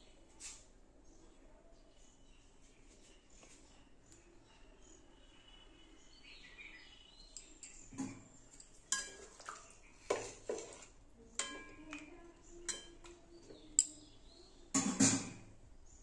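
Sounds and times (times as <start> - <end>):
metal utensil clinking on pan: 7.6 - 9.4, 11.4 - 13.1, 14.8 - 15.4.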